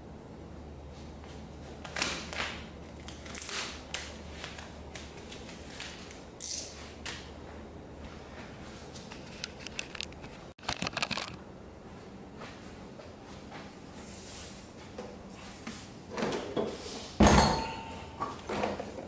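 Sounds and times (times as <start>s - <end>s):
vinyl rustling and crinkling: 1.3s - 6.2s.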